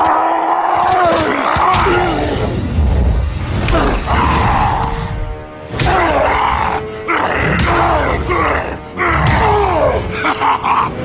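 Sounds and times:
dramatic background music: 0.0 - 11.0
gruff voices grunting: 5.8 - 11.0.

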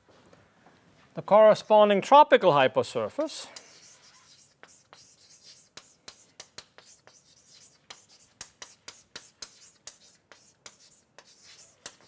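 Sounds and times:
chalk tapping and scratching: 3.2 - 12.0.

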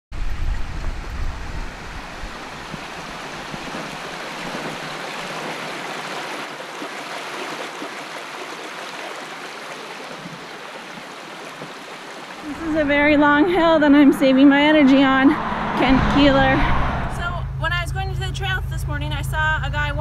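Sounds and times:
low rumble: 0.1 - 4.0, 12.4 - 20.0
steady rushing noise: 0.1 - 6.6, 12.4 - 17.5.

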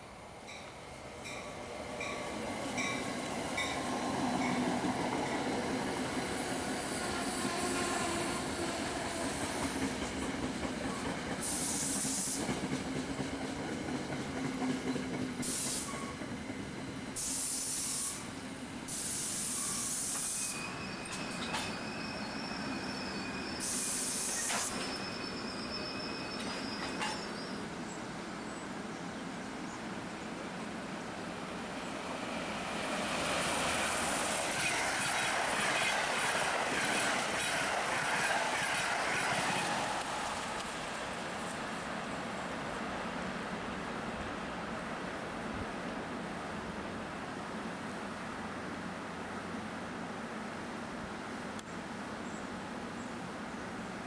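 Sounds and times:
train running on rails: 0.0 - 54.0
bursts of hissing air: 11.4 - 12.5, 15.4 - 16.0, 17.2 - 18.3, 18.9 - 20.6, 23.6 - 24.8
regular rail clicks: 19.2 - 21.8, 22.8 - 27.6, 32.7 - 41.6.

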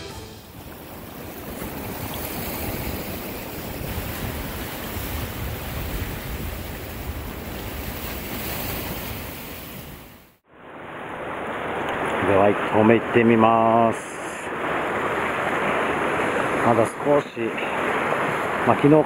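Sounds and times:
surf breaking over rocks: 0.0 - 19.0
wind buffeting microphone: 0.5 - 10.1.

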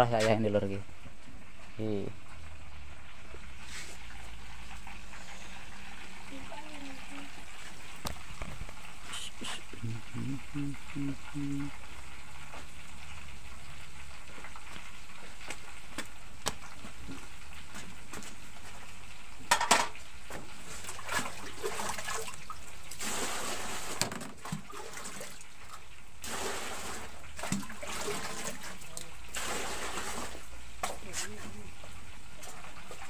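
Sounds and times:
frying sizzle in wok: 0.0 - 9.8, 10.9 - 21.0, 22.5 - 24.2, 25.5 - 27.4, 29.1 - 33.0
pots and utensils clinking: 19.4 - 20.0.

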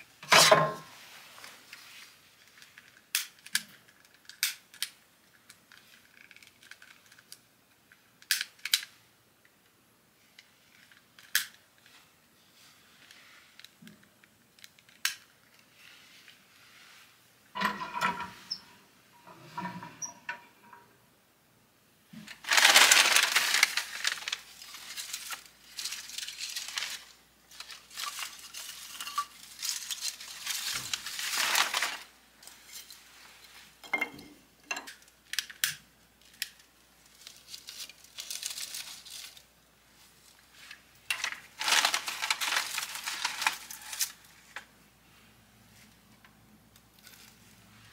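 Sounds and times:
newspaper crumpling: 22.3 - 32.2, 36.6 - 39.5, 40.3 - 44.5.

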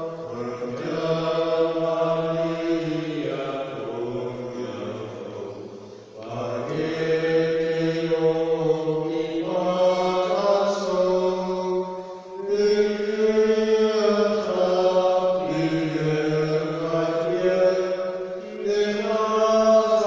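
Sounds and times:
man chanting: 0.0 - 20.0.

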